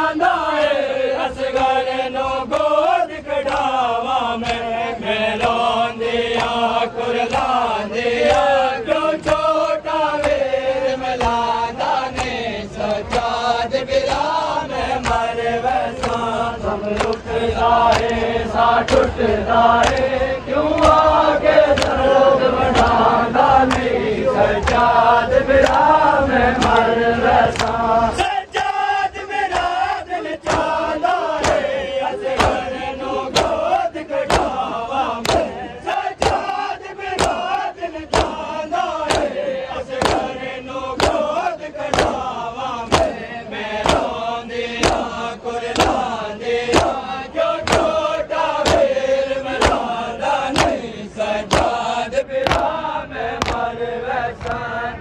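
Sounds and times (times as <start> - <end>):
men chanting a lament: 0.0 - 55.0
hands slapping chests: 3.4 - 3.8, 4.4 - 4.7, 5.4 - 7.6, 8.2 - 10.4, 11.2 - 11.5, 12.1 - 13.4, 14.1 - 19.2, 19.8 - 20.1, 20.7 - 21.1, 21.7 - 22.0, 22.7 - 23.0, 23.6 - 23.9, 25.6 - 25.9, 26.6 - 26.9, 27.5 - 27.8, 29.5 - 32.7, 33.3 - 40.4, 41.0 - 44.2, 44.8 - 52.8, 53.4 - 53.7.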